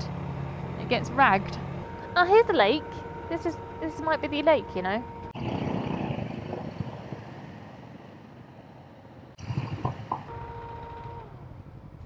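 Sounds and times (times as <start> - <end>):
motorcycle engine: 0.0 - 12.0
wind rush: 5.4 - 10.2.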